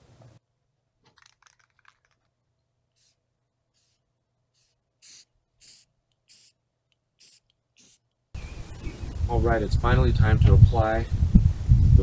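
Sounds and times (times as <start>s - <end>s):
aerosol spray hissing: 3.0s - 3.2s, 3.8s - 6.6s, 7.2s - 8.0s.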